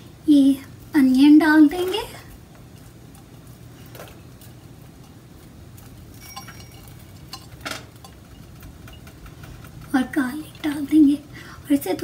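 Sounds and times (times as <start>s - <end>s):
low steady hum: 0.0s - 12.0s
dish clinking against frying pan: 6.2s - 9.2s.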